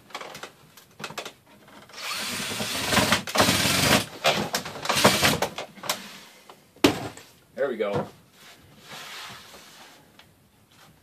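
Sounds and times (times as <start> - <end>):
cordless drill driving screws: 1.9 - 4.1, 4.9 - 5.4.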